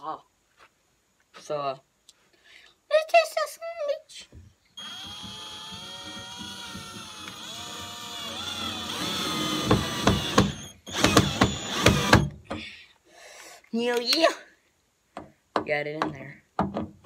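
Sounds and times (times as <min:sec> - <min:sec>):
drill ratcheting clatter: 0:04.8 - 0:12.3
cordless drill whining: 0:04.8 - 0:12.4.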